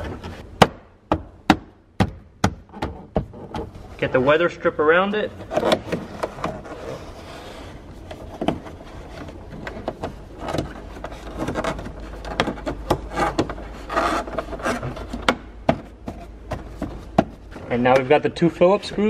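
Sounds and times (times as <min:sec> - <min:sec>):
rubber scraping plastic trim: 0:05.4 - 0:15.4.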